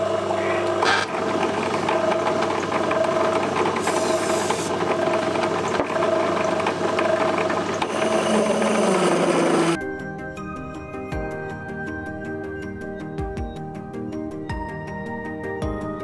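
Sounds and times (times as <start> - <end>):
lathe drilling into metal: 0.0 - 9.8
hiss of metal chips: 3.8 - 4.7
music: 9.8 - 16.0.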